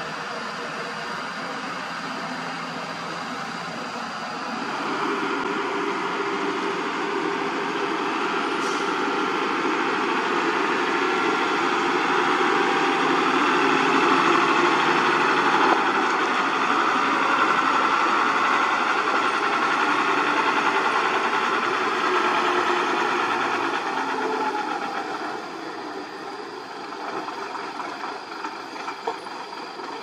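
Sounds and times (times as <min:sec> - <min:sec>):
diesel truck engine passing: 0:00.0 - 0:30.0.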